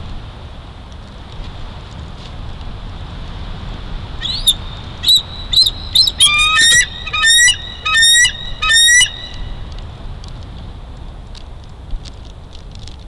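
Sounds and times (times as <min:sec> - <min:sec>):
eagle calling: 0:04.2 - 0:09.6.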